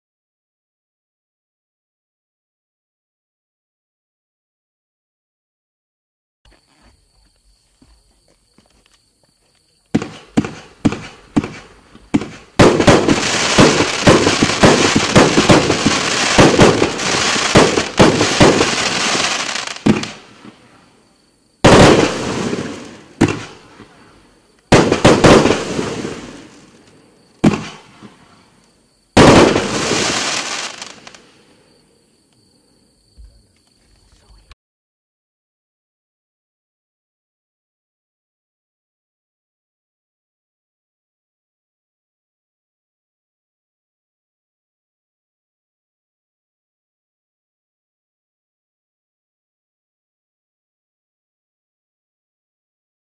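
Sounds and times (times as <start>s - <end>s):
fireworks shots firing: 9.9s - 20.7s, 21.6s - 24.0s, 24.7s - 26.8s, 27.4s - 28.4s, 29.2s - 31.3s
loud firework bursts: 9.9s - 20.8s, 21.6s - 26.8s, 27.4s - 31.6s.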